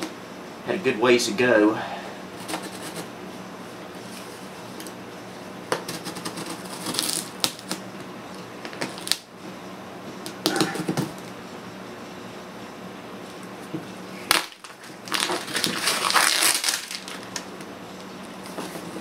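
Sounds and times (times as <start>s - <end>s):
knife cutting packing tape: 5.7s - 7.8s, 14.3s - 17.4s
tape peeling off cardboard: 5.8s - 7.8s.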